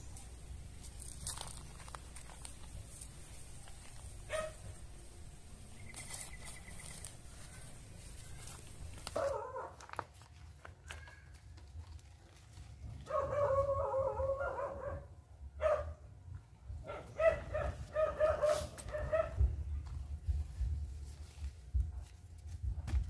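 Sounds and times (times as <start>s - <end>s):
dog yelping: 13.1s - 15.0s.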